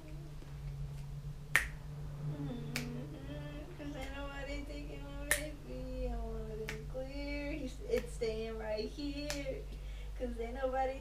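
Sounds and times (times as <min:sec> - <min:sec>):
man humming a tune: 0:00.0 - 0:00.4, 0:02.2 - 0:04.0
finger snaps: 0:00.0 - 0:01.8, 0:02.7 - 0:03.0, 0:05.2 - 0:05.6, 0:09.2 - 0:09.6.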